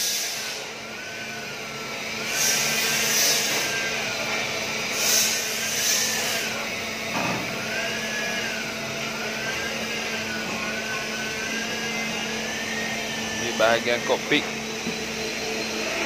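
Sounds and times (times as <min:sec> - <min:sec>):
workshop machinery drone: 0:00.0 - 0:16.0
short hisses: 0:04.9 - 0:06.2.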